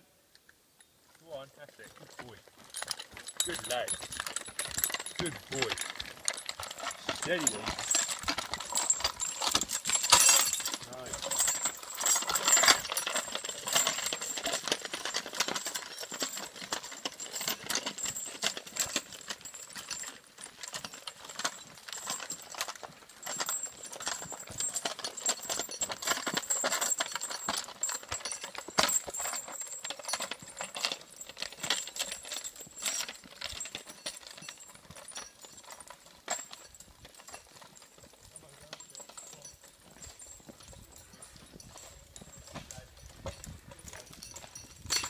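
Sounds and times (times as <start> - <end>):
horse hooves clip-clopping on dirt: 0.4 - 45.0
harness clinking: 0.7 - 45.0
log scraping and crackling: 1.1 - 24.5.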